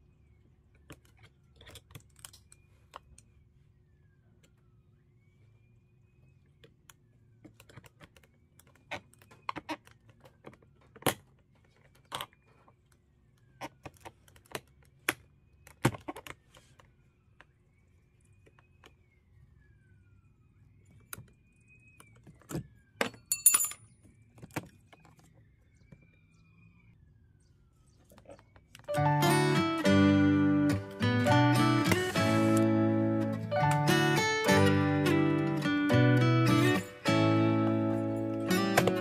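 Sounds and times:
metallic jingle: 23.3 - 23.9.

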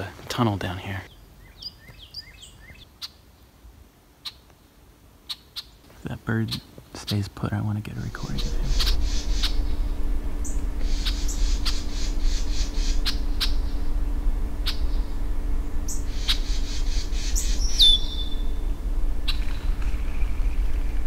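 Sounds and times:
faint hum: 6.0 - 21.0
steady low rumble: 7.6 - 21.0
bird whistle sliding down: 15.8 - 18.6
small bird calling: 15.9 - 20.7.

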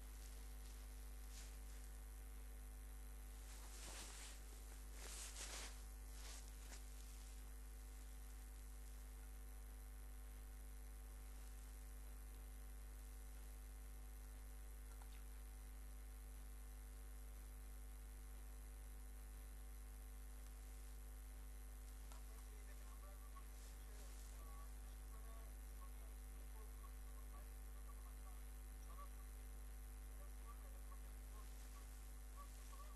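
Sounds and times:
low electrical hum with hiss: 0.0 - 32.9.

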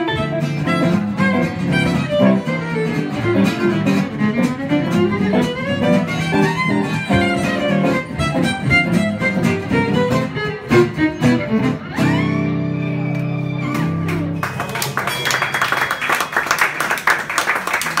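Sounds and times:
guitars and violin playing jazz: 0.0 - 14.6
audience applause: 13.0 - 18.0.

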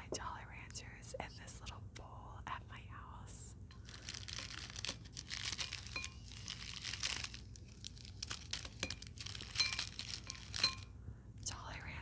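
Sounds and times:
plastic candy wrappers crinkling: 3.7 - 10.9.

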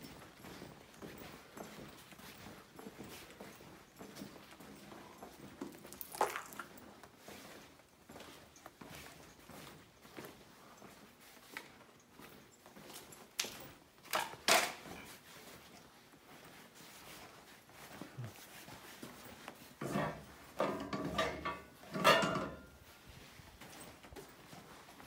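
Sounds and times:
creaking and rattling: 19.8 - 22.9.

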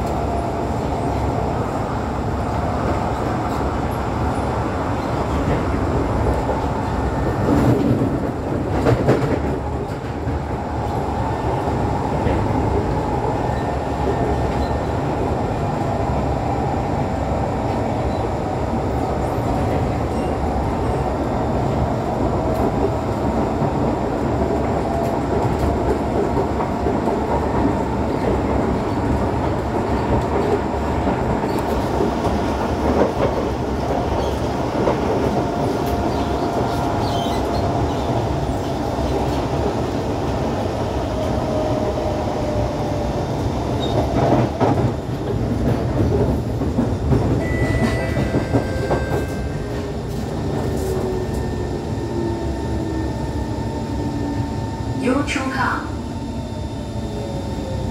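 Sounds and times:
train wheels rumbling on rail: 0.0 - 57.9.

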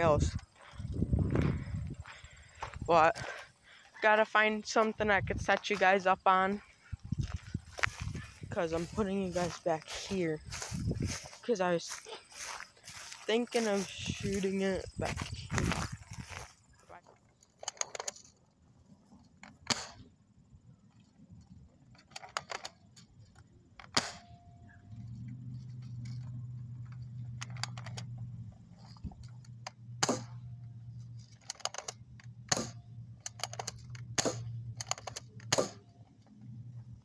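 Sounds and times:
low hum: 0.0 - 17.6, 22.9 - 37.0
airsoft rifle firing clicks: 19.5 - 20.1, 23.8 - 24.4, 30.0 - 30.4, 31.5 - 35.9.

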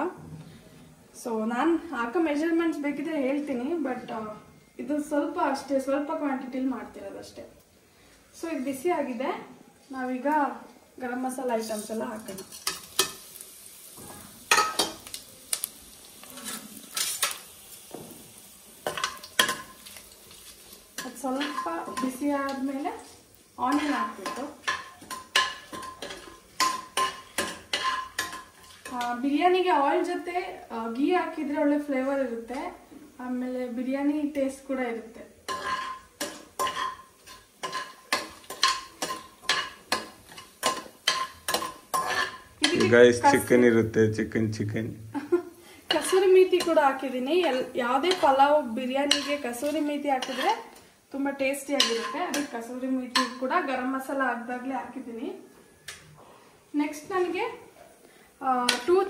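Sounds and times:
spices sizzling in hot oil: 9.9 - 55.9, 56.7 - 59.0
spoon scraping metal pot: 21.0 - 22.7, 23.7 - 29.0, 35.5 - 43.0, 49.0 - 50.7, 51.7 - 52.5.

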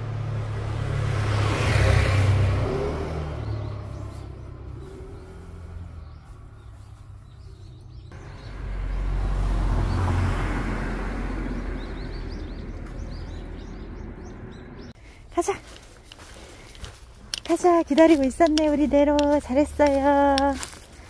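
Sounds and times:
car passing: 0.0 - 15.0.

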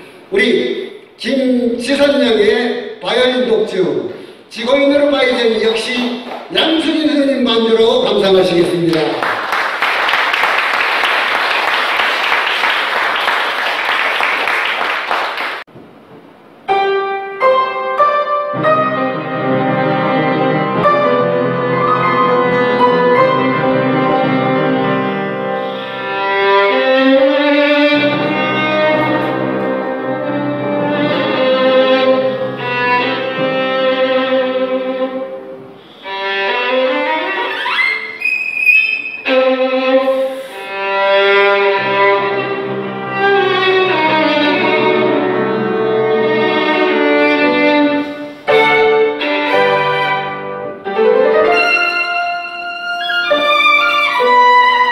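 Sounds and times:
low held accompaniment notes: 16.7 - 37.4
solo violin melody: 16.8 - 54.9.

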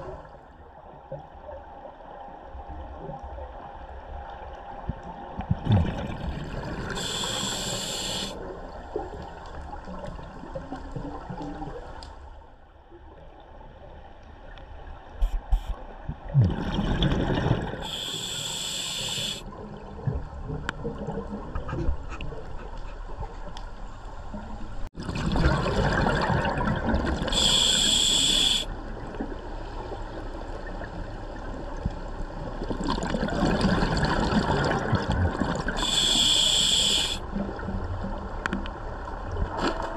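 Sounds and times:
gurgling exhaled bubbles: 5.6 - 7.9, 16.3 - 18.2, 25.0 - 27.4, 32.6 - 35.8
regulator hissing inhales: 7.0 - 8.4, 17.8 - 19.4, 27.3 - 28.7, 35.8 - 37.2.

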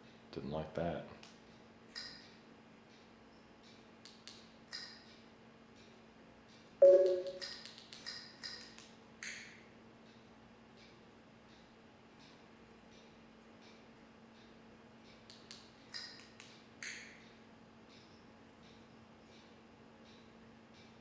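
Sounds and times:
low blip: 6.8 - 7.4
menu clicks: 6.8 - 7.4.

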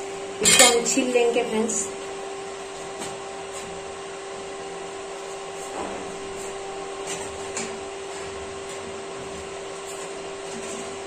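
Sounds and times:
machine hum: 0.0 - 11.0.

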